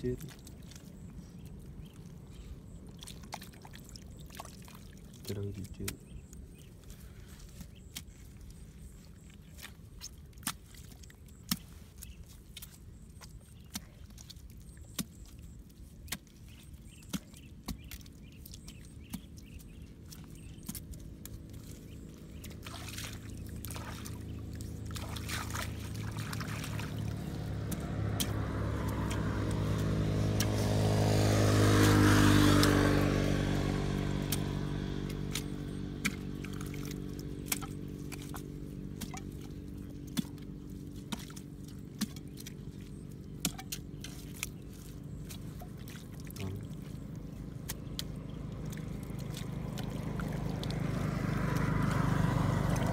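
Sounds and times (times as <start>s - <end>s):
hand tool digging wet mud: 0.0s - 52.9s
vehicle engine passing by: 18.8s - 52.9s.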